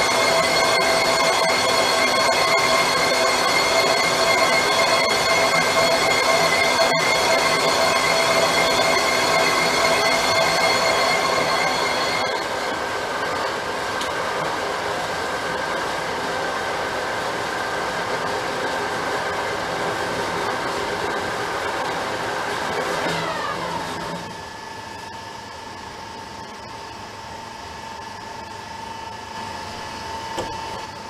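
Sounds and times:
high squeal: 0.0 - 13.9
metal lathe cutting: 0.0 - 24.6
lathe winding down whine: 0.0 - 31.0.

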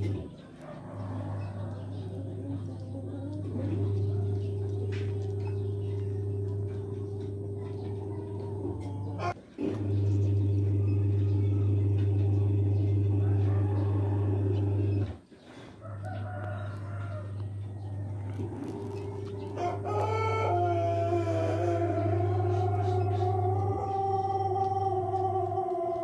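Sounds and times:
rooster crowing: 0.6 - 3.4, 7.6 - 9.4, 13.0 - 15.0, 15.6 - 26.0
low hum: 0.9 - 15.2, 16.1 - 26.0.

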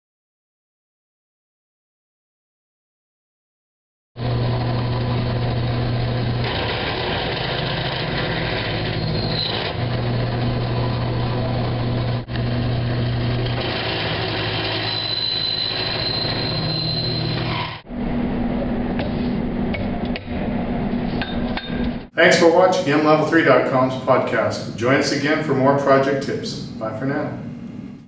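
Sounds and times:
drill press motor hum: 4.2 - 21.3
high-pitched squeal: 4.4 - 22.4.

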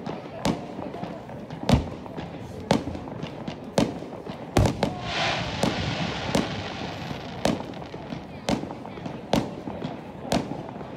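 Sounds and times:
high hiss: 4.6 - 8.4
fireworks shells bursting: 4.6 - 8.9.

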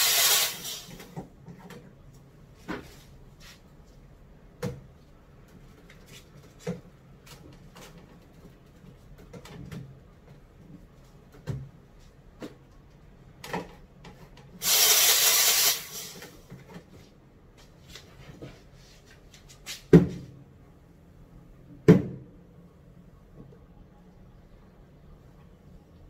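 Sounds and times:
steam wand hissing: 0.0 - 0.9, 14.6 - 16.2.

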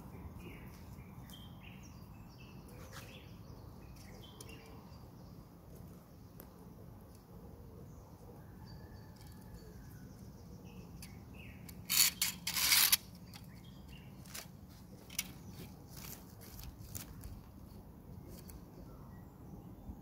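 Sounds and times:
small birds chirping faintly: 0.0 - 20.0
loud rustling scrapes: 11.8 - 13.3.

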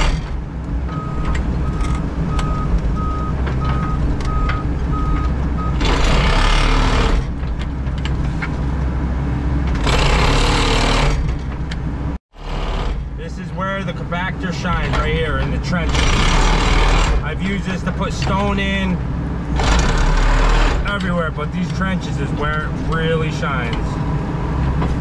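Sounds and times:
diesel engine running: 0.0 - 25.0
backup alarm beeping: 0.9 - 5.8.

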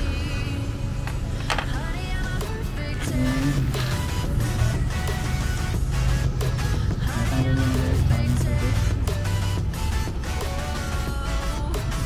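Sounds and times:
electronic trap music: 2.0 - 12.0.

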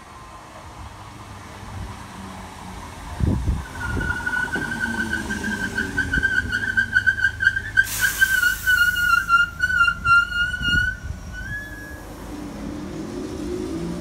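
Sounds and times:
train brakes squealing: 3.6 - 12.3
short hiss: 7.9 - 9.2.

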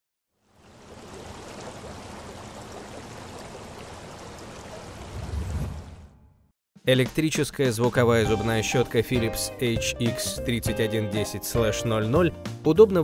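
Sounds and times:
running water: 0.3 - 5.8.

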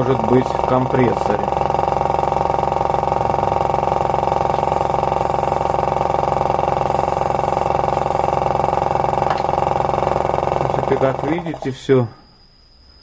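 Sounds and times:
airbrush compressor running: 0.0 - 11.7
short hisses of air: 4.5 - 5.8, 6.8 - 8.5.

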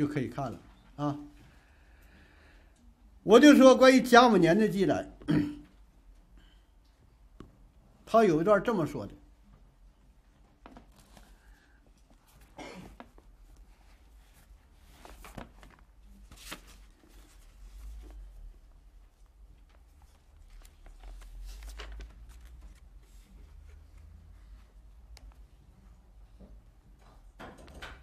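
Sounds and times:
book pages rustling: 10.5 - 25.5.

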